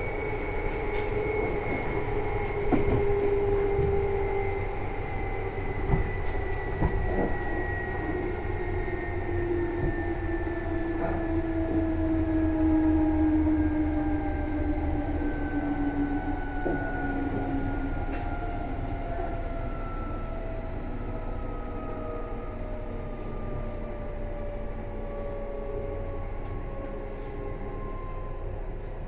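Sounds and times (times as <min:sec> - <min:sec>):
electric train motor whine: 0:00.0 - 0:29.0
train running rumble: 0:00.0 - 0:29.0.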